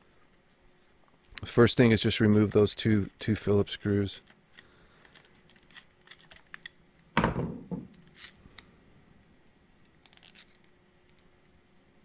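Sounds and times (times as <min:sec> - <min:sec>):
metal parts clicking: 0:04.2 - 0:07.1, 0:09.8 - 0:11.5.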